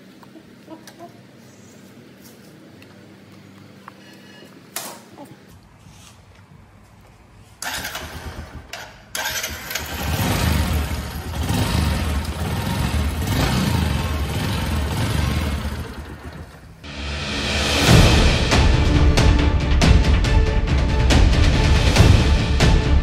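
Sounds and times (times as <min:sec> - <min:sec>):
motorcycle engine starting and running: 0:07.6 - 0:16.9.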